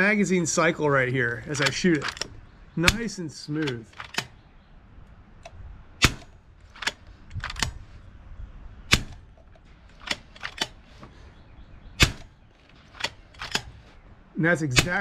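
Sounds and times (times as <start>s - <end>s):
rifle action clicks: 1.5s - 4.4s, 5.4s - 7.8s, 8.9s - 10.8s, 12.0s - 14.0s
air rifle shots: 1.6s - 4.4s, 6.0s - 7.8s, 8.9s - 10.8s, 12.0s - 13.9s, 14.7s - 15.0s.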